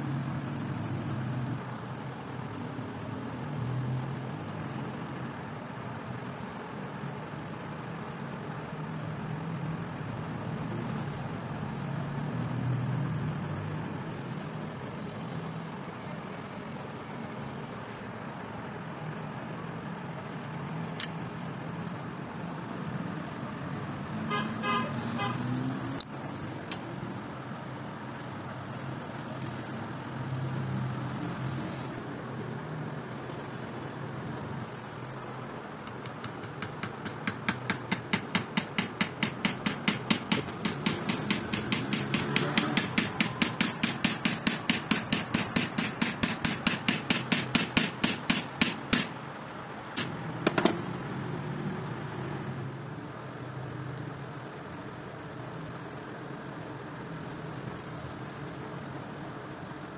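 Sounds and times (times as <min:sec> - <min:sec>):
hammer tapping on metal: 0:35.8 - 0:49.2, 0:50.0 - 0:50.8.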